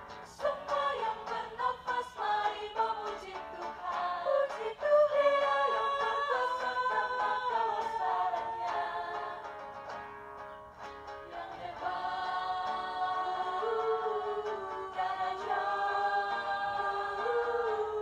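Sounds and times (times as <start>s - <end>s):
group singing in harmony: 0.0s - 10.1s, 11.1s - 18.0s
acoustic guitar strumming: 0.0s - 18.0s.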